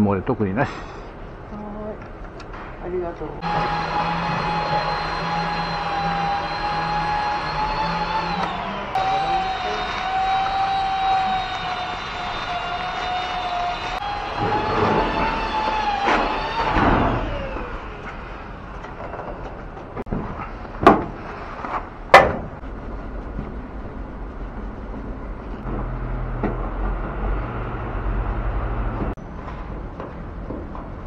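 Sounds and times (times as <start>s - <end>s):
falling tone: 3.4s - 19.6s.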